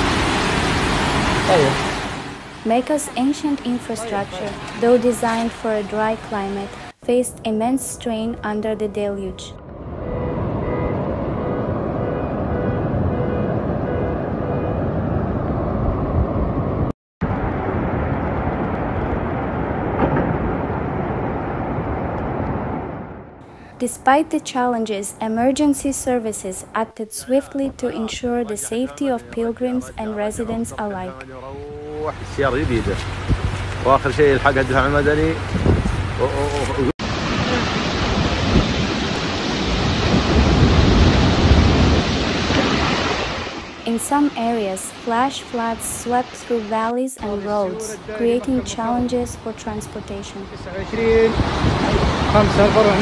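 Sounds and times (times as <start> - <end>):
floodwater rushing: 0.0 - 7.0, 36.2 - 53.0.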